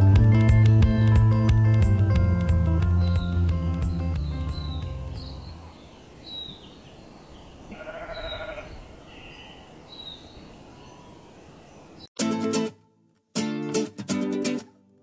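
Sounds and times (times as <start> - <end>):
sheep bleating: 7.7 - 9.6.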